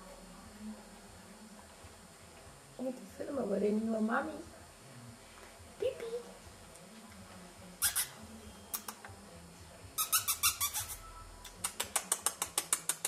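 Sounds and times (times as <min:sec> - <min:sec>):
puppies' claws clicking on tiles: 0:10.8 - 0:13.0.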